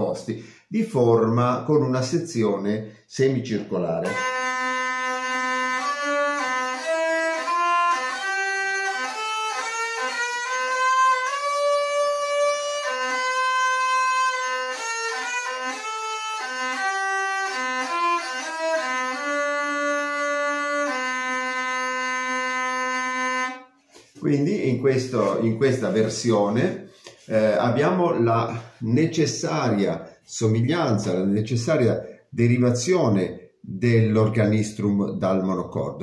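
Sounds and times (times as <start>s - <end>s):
wheel-bowed fiddle melody: 4.0s - 28.8s.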